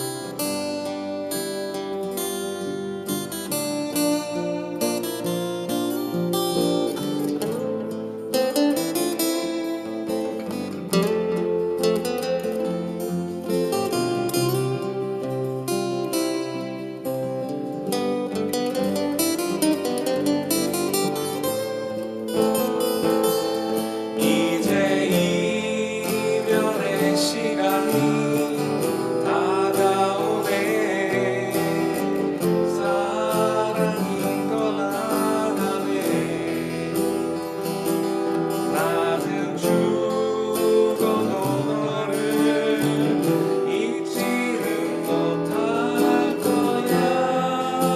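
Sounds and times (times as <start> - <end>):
acoustic guitar playing: 0.0 - 47.9
man singing: 23.5 - 47.9.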